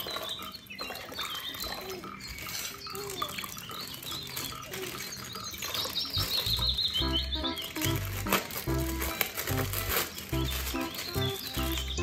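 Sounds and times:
water sloshing in plastic basin: 0.0 - 7.0
hands squeezing wet plastic bag: 0.0 - 12.0.

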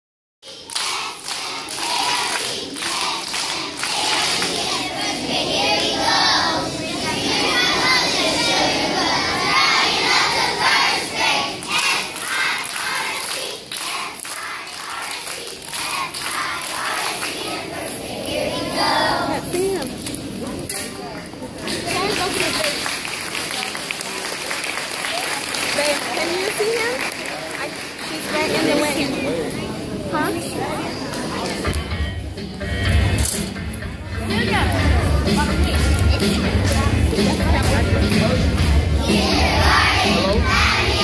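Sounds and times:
children singing together: 0.5 - 19.5, 38.9 - 41.0.

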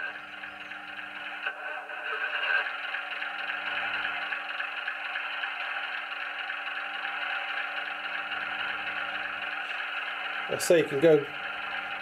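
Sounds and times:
diesel engine idling on small speaker: 0.0 - 12.0.

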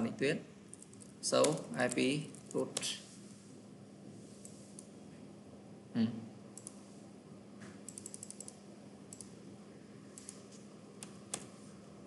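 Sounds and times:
faint steady hum: 0.0 - 12.0
keyboard and mouse clicks: 0.7 - 3.0, 6.6 - 6.8, 7.6 - 9.4, 10.1 - 11.6.

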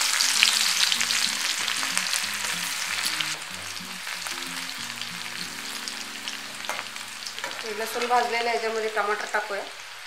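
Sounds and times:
faint background music: 0.0 - 9.8
garlic sizzling in hot oil: 0.0 - 10.0
ladle stirring pan: 6.4 - 8.2.

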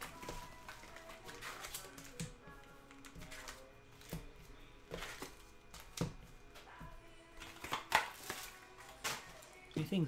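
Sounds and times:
foil card packs crinkling: 0.0 - 6.0, 7.4 - 10.0
faint background music: 0.0 - 10.0.

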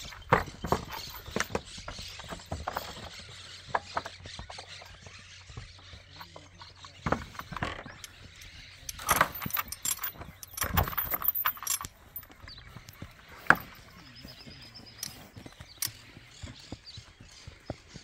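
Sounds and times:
gate latch rattling and clanking: 6.9 - 12.4.

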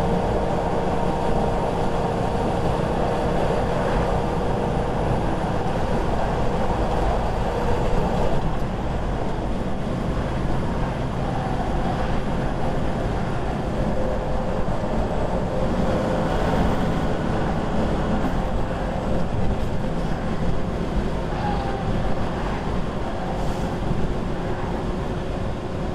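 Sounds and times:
truck engine and road noise: 0.0 - 25.9.

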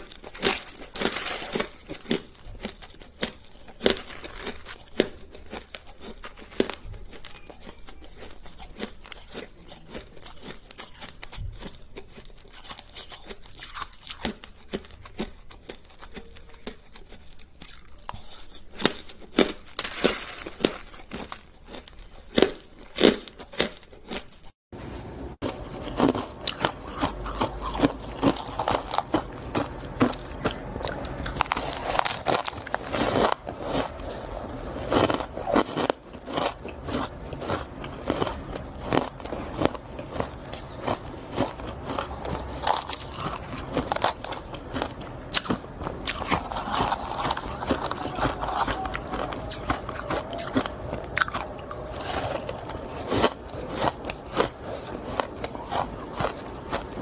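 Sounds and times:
chewing crunchy ice: 0.0 - 57.0.

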